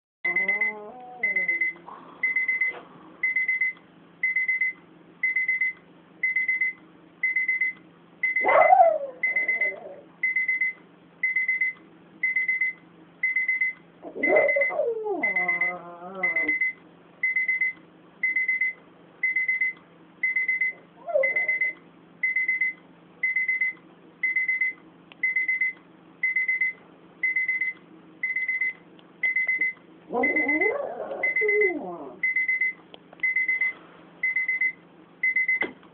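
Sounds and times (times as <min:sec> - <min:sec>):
pet crying: 0:00.3 - 0:01.8, 0:08.4 - 0:10.1, 0:14.0 - 0:16.6
alarm clock beeping: 0:00.3 - 0:08.5, 0:09.2 - 0:30.6, 0:31.2 - 0:35.6.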